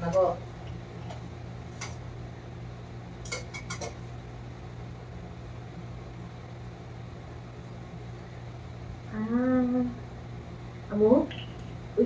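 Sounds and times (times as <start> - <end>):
steady low hum: 0.0 - 12.0
dishes and cutlery clinking: 3.2 - 4.0.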